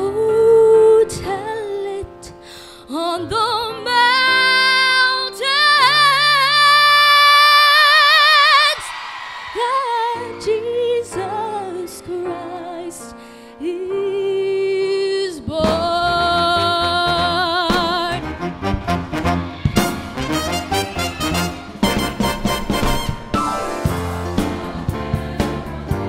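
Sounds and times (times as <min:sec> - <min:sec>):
woman singing with vibrato: 0:02.9 - 0:08.9, 0:09.5 - 0:13.0
musical accompaniment: 0:09.6 - 0:26.0.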